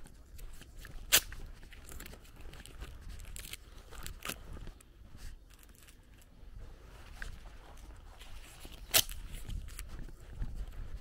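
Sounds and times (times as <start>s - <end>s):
branches rustling against camera: 0.0s - 11.0s
sharp snap: 1.0s - 1.4s.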